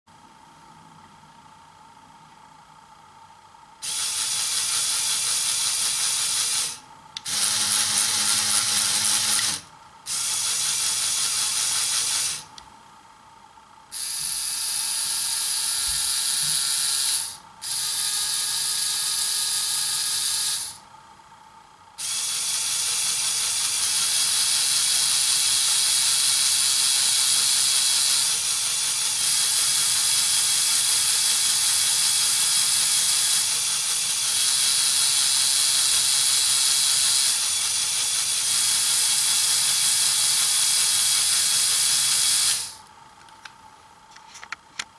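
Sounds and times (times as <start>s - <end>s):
toy electric motor whirring: 3.8s - 12.6s, 13.9s - 20.9s, 22.0s - 42.9s.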